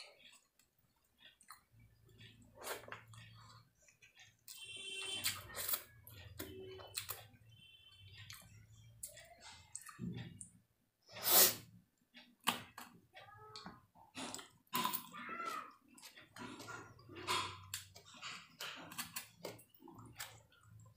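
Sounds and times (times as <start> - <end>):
chewing: 0.0 - 7.4, 8.1 - 10.6, 14.0 - 20.9.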